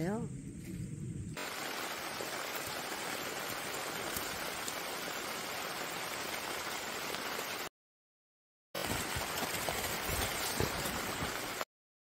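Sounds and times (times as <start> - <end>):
outdoor background hiss: 0.0 - 7.7.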